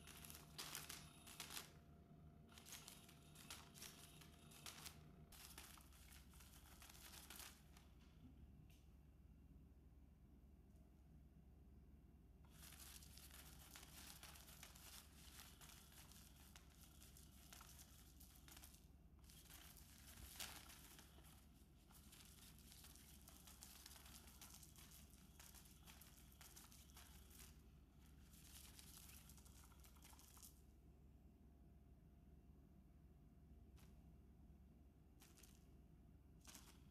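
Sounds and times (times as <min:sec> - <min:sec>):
crinkly fabric rustling: 0:00.0 - 0:01.8, 0:02.5 - 0:08.3, 0:12.5 - 0:30.7, 0:35.1 - 0:36.9.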